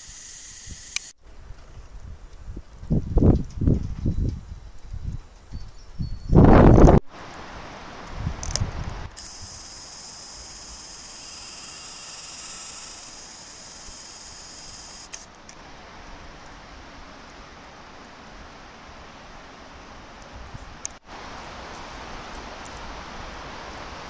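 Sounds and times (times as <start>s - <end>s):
steady high-pitched hiss: 0.0s - 3.7s, 4.3s - 24.0s
faint hiss: 7.1s - 24.0s.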